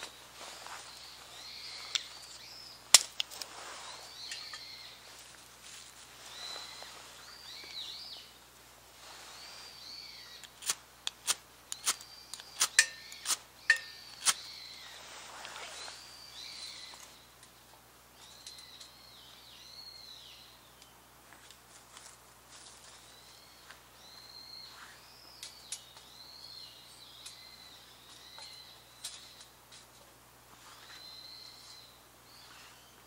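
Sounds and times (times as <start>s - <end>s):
bird calling: 0.0s - 5.4s, 6.2s - 8.4s, 11.7s - 17.3s.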